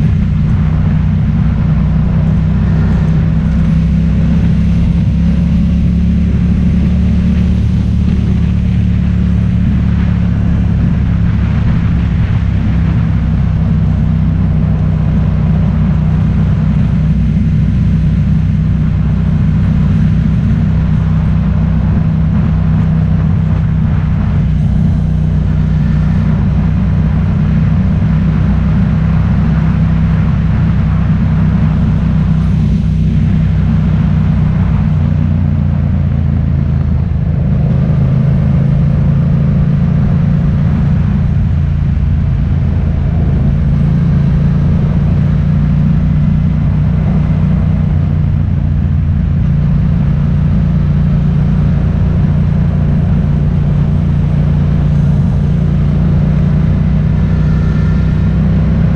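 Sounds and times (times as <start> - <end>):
road noise: 0.0 - 58.9
vehicle engine droning: 0.0 - 58.9.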